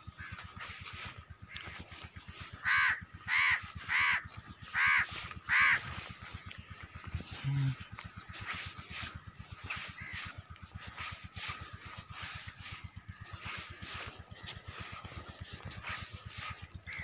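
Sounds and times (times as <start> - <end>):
crow cawing: 0.1 - 0.7, 1.5 - 6.4, 9.6 - 10.5, 16.8 - 17.0.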